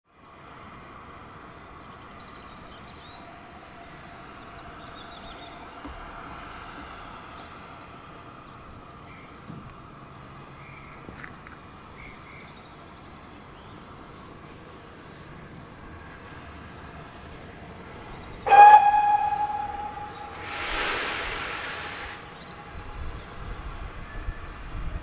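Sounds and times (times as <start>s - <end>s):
steam locomotive hissing: 17.8s - 24.0s.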